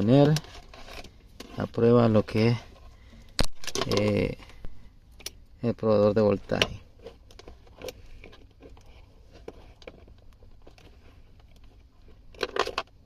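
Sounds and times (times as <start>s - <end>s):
faint clicks and rustles of handling: 0.0s - 13.0s
low steady rumble: 0.0s - 13.0s.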